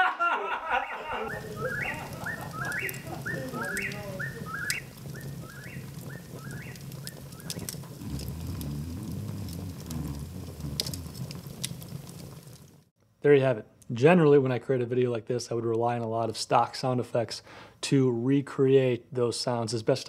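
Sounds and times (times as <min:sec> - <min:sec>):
high animal call at night: 0:00.8 - 0:10.6
log fire crackling and popping: 0:01.1 - 0:12.9.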